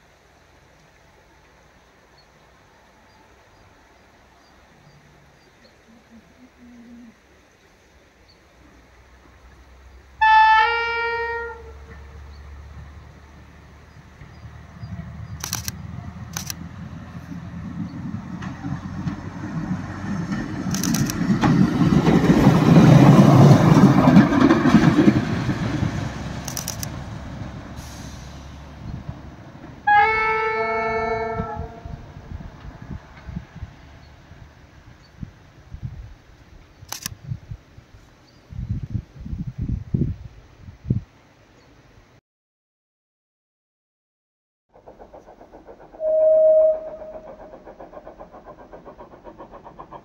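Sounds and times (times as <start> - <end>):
two-tone train horn: 10.2 - 12.3, 29.8 - 32.1, 46.0 - 47.3
wheels clicking over rail joints: 17.2 - 27.7, 44.8 - 50.0.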